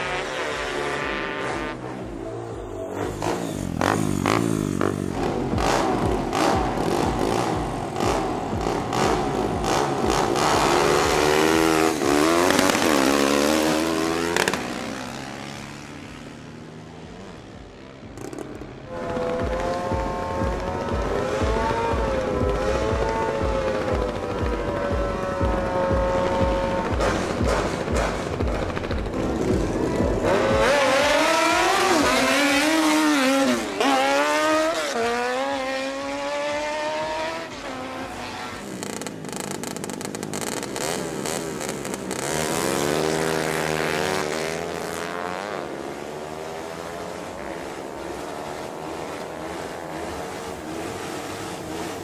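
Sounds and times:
motorcycle engines revving: 0.0 - 52.0.

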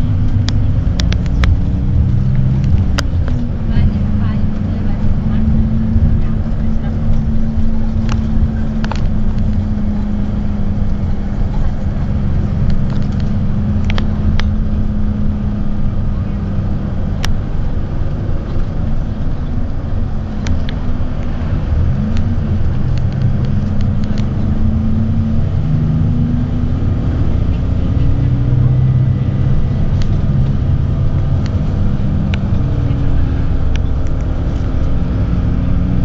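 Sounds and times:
low engine rumble: 0.0 - 36.0.

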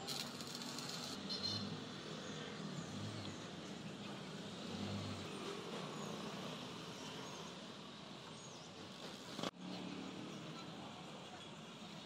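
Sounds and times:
passing vehicles: 1.0 - 12.0.

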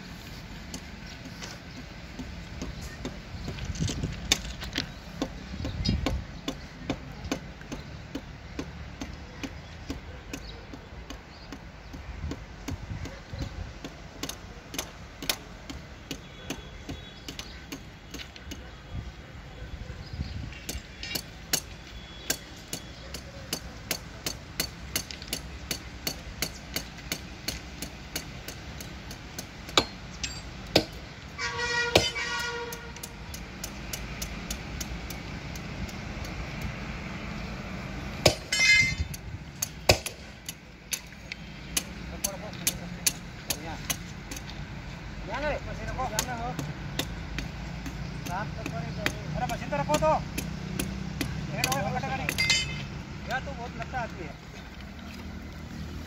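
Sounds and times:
hammer tapping on steel: 20.7 - 31.0, 46.1 - 53.0.

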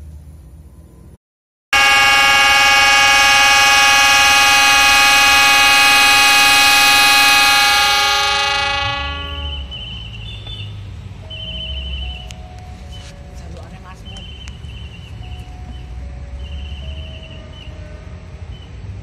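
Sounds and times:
locomotive air horn: 1.7 - 10.2.

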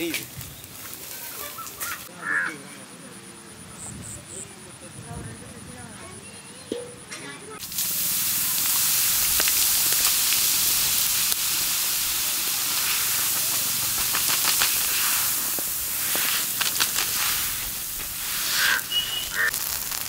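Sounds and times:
fire crackling: 0.0 - 2.1, 7.6 - 20.0
water hissing into steam: 7.6 - 20.0.

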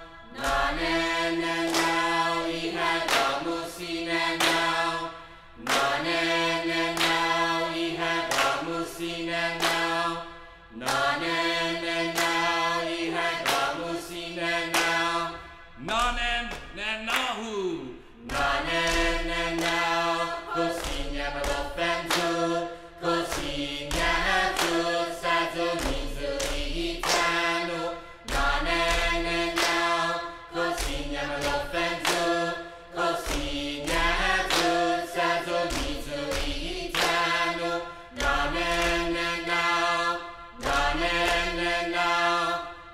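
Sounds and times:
voices chanting in held notes: 0.0 - 16.0, 17.4 - 42.9.

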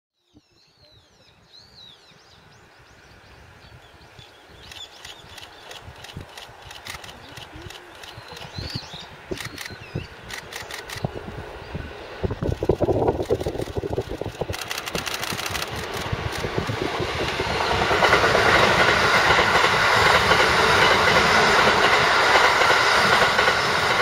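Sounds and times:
birds chirping: 0.2 - 11.9
electric train rumble: 2.1 - 24.0
sharp clicks: 4.6 - 11.1, 12.4 - 16.6.

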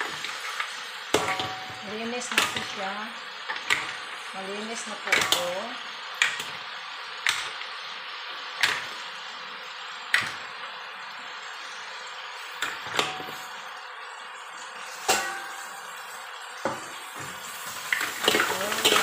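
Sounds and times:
frying sizzle: 0.0 - 19.0
mussels clinking into wok: 1.1 - 2.8, 15.0 - 15.8, 17.9 - 19.0.

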